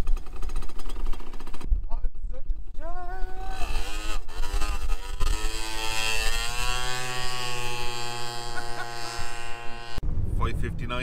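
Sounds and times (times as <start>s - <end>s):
scooter engine revving: 0.0s - 1.7s, 3.2s - 10.0s.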